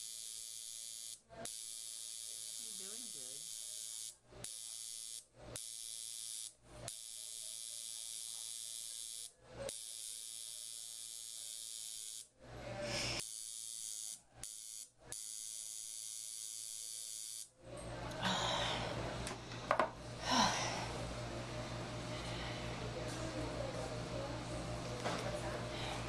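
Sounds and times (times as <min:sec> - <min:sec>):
high-pitched electric buzz: 0:00.0 - 0:12.3, 0:13.2 - 0:17.5.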